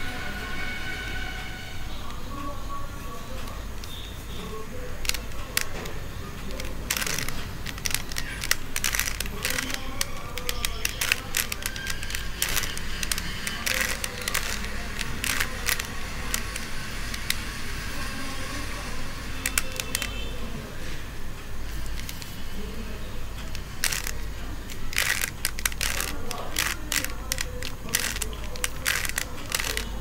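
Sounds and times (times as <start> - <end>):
puzzle cube clicking as turned: 4.8 - 17.5, 19.4 - 20.2, 21.8 - 22.4, 23.4 - 30.0.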